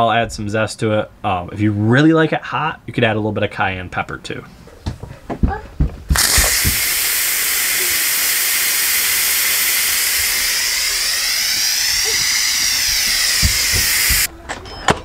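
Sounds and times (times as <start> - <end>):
pressure cooker steam hiss: 6.1 - 14.3.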